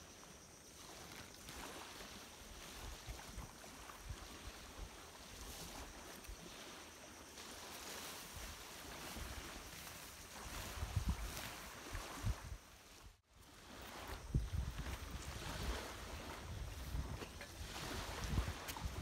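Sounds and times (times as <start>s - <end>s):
sea wash: 0.0s - 19.0s
wind rumbling on microphone: 8.2s - 19.0s.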